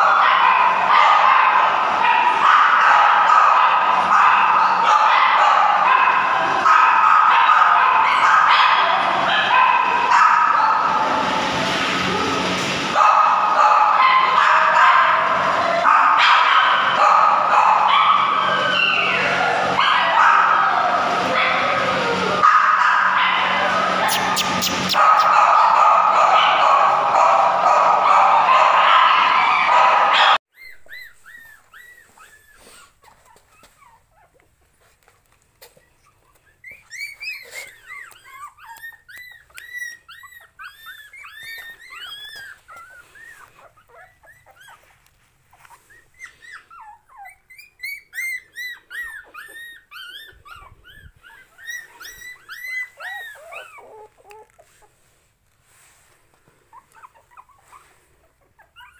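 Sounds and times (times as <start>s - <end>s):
puppies squeaking and whimpering: 18.2s - 19.8s, 23.6s - 25.3s, 30.5s - 58.9s.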